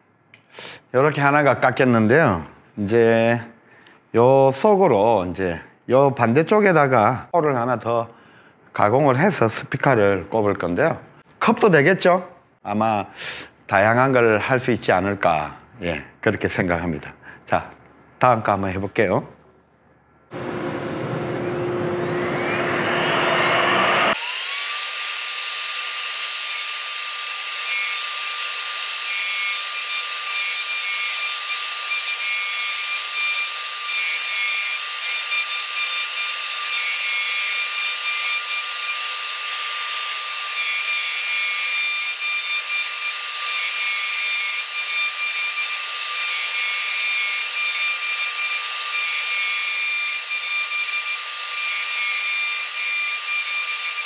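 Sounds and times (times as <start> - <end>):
router spindle whining: 20.3 - 54.0.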